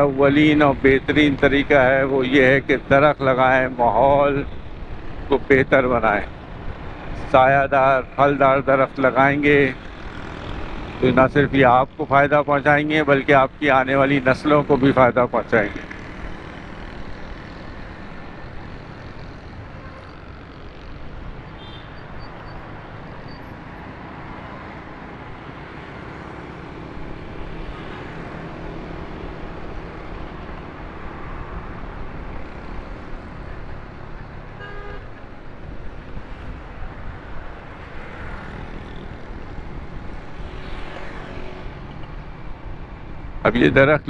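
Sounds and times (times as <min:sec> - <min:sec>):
passing vehicles: 0:00.0 - 0:44.0
short horn beep: 0:34.6 - 0:35.0.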